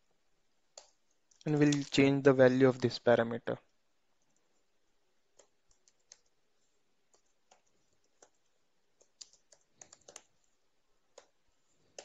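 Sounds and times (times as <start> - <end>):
computer keyboard typing: 5.3 - 6.4, 7.0 - 12.0.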